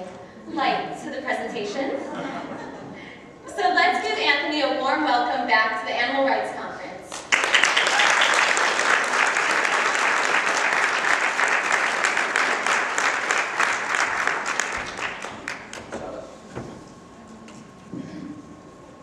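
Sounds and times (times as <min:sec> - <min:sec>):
audience applauding: 0:07.2 - 0:15.9.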